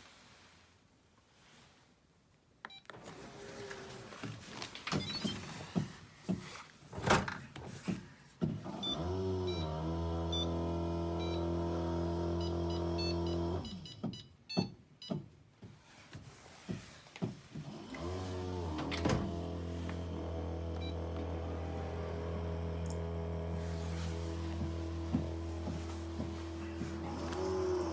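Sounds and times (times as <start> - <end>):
dishwasher pump motor humming: 8.9 - 13.6, 17.9 - 27.9.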